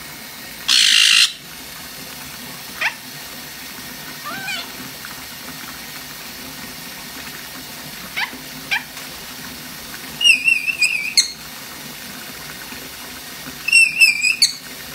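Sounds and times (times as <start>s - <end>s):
parrot whistling: 0.7s - 1.4s, 10.2s - 11.4s, 13.6s - 14.6s.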